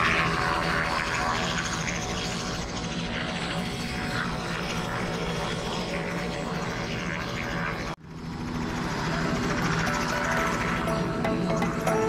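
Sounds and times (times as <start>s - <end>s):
aircraft engine drone: 0.0s - 12.0s.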